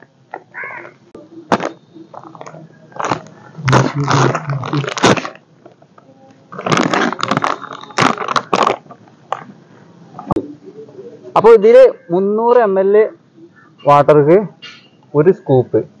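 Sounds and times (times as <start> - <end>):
plastic pouch rustling: 1.6 - 5.8, 6.5 - 9.5.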